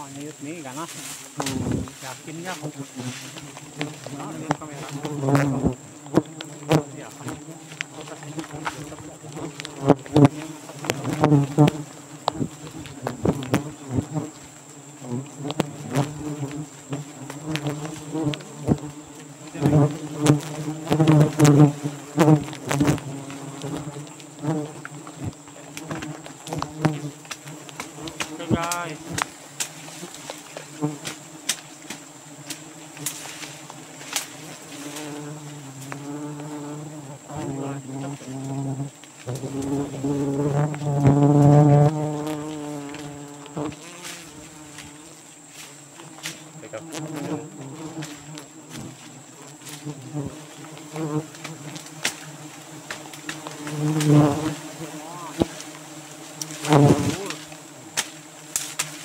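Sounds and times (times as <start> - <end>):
bee whining past: 0.0 - 31.4, 46.0 - 59.0
bees buzzing in low drone: 0.0 - 59.0
sharp ticks and taps: 16.9 - 18.8, 23.6 - 33.2.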